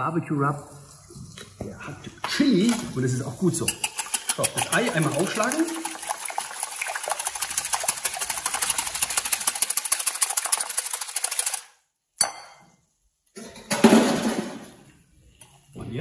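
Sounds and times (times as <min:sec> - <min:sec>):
whisk beating eggs in glass bowl: 0:02.6 - 0:11.7.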